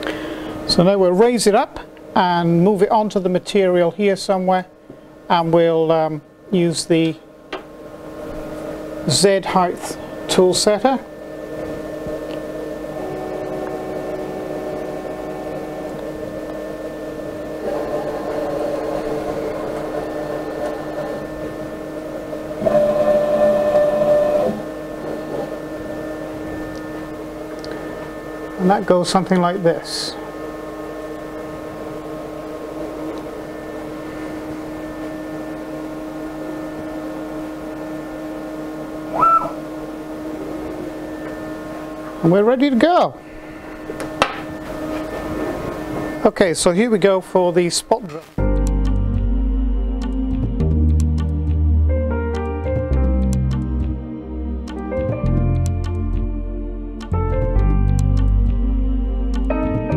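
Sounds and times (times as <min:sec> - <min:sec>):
machine hum: 0:00.0 - 0:59.9
stepper motor whine: 0:04.8 - 0:47.2.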